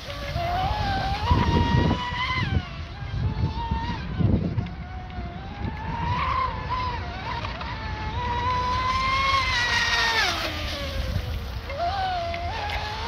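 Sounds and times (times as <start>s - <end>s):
electric speedboat motor whining: 0.0s - 13.0s.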